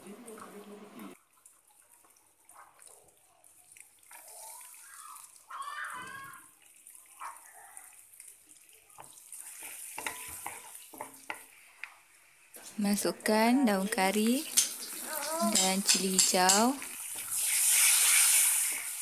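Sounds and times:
wooden spatula scraping and tapping: 9.0 - 12.0, 14.1 - 17.4
garlic sizzling in butter: 9.0 - 19.0.

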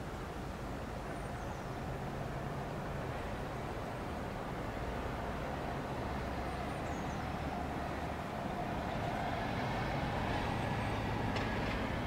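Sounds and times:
road traffic hum: 0.0 - 12.0
vehicle passing: 4.8 - 12.0.

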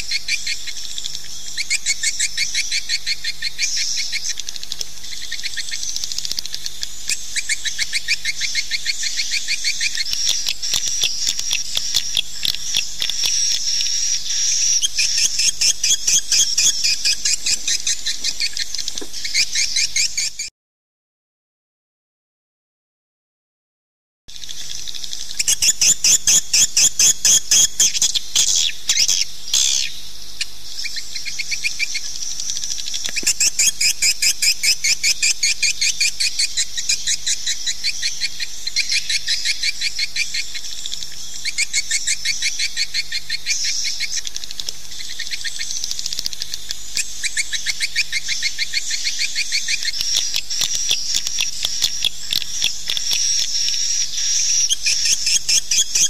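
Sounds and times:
swiftlets clicking chirps: 9.8 - 14.0, 49.7 - 54.0.

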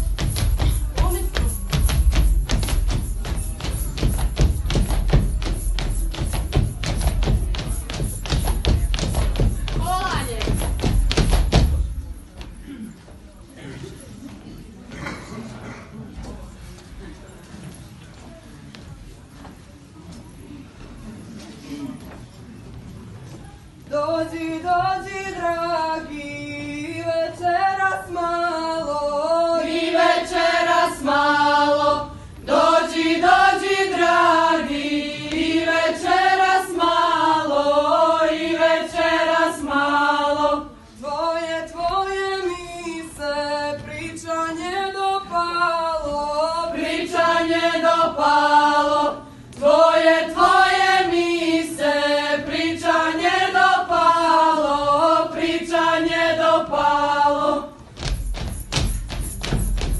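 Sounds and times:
girls singing unaccompanied: 23.9 - 58.1.

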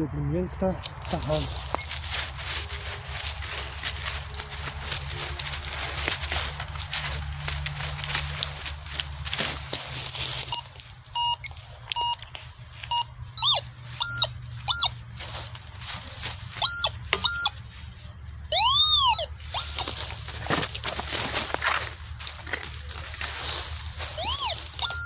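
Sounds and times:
dry leaves and twigs rustling: 0.6 - 25.0
metal detector beeping: 1.1 - 2.1, 10.2 - 21.8, 23.6 - 25.0.

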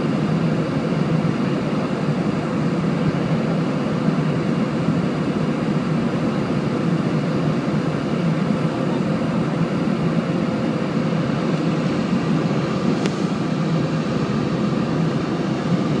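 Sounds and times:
aircraft engines rumbling: 0.0 - 16.0
rushing air: 11.3 - 16.0.

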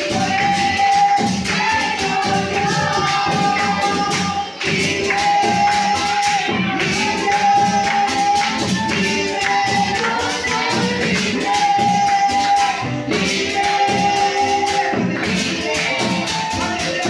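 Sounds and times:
keyboard playing: 0.0 - 17.0
people singing: 0.0 - 17.0
shaken percussion beat: 0.0 - 17.0.

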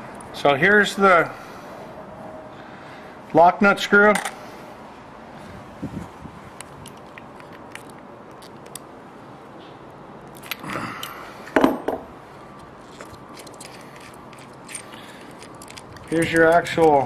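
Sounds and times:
wrenches clicking and scraping on metal: 10.3 - 11.8, 12.5 - 17.0.

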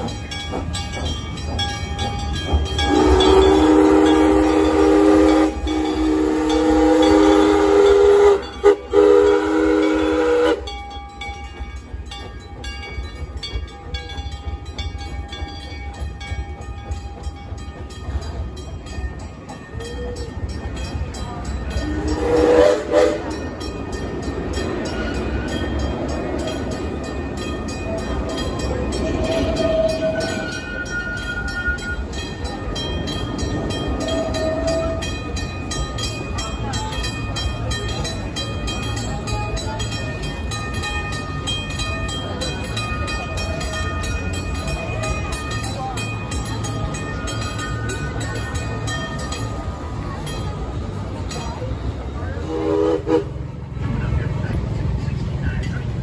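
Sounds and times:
train rumbling past: 0.0 - 56.0
steam locomotive whistle: 2.8 - 10.8, 21.8 - 23.4, 29.1 - 32.1, 52.4 - 53.5.

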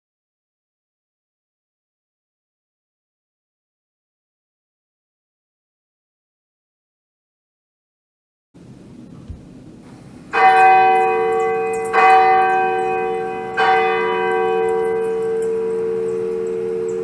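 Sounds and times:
large bell ringing: 10.3 - 17.0.

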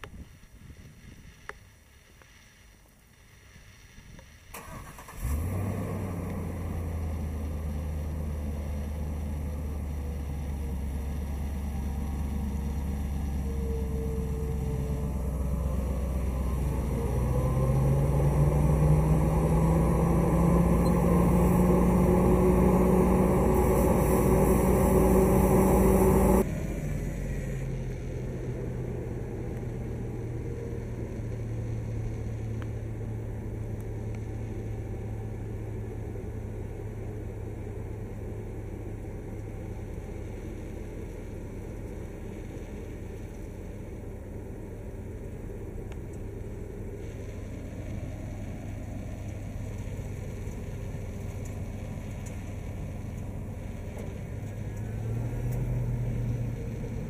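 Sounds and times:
street sweeper engine running: 6.1 - 57.0.

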